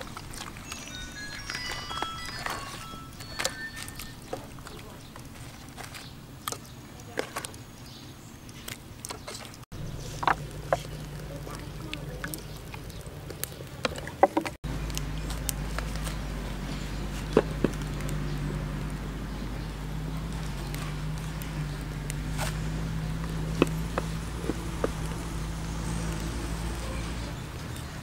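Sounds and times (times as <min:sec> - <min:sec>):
hands working meat: 0:00.0 - 0:07.7, 0:08.4 - 0:28.0
steady low hum: 0:09.7 - 0:27.2.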